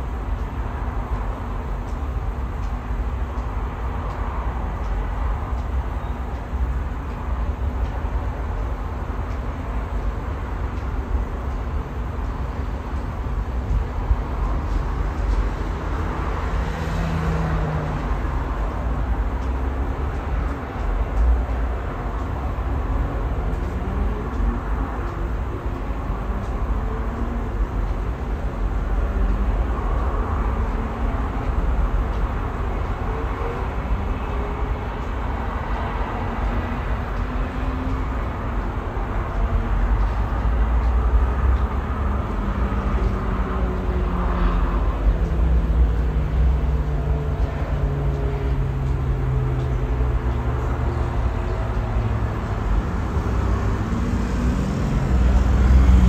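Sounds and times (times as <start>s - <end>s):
distant city traffic: 0.0s - 56.0s
engine revving: 42.0s - 56.0s.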